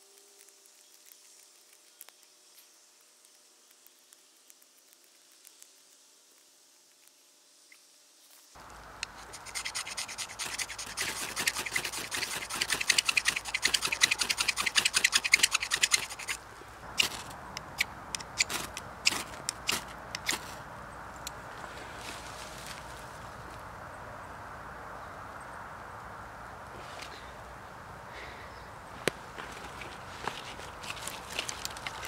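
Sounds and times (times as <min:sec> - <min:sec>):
knife scraping ferrocerium rod: 0:09.0 - 0:16.4, 0:17.0 - 0:20.5.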